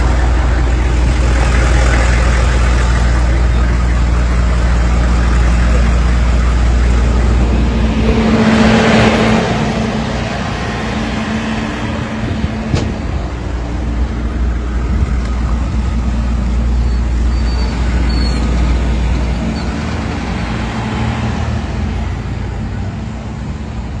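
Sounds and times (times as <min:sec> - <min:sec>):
truck engine running: 0:00.0 - 0:24.0.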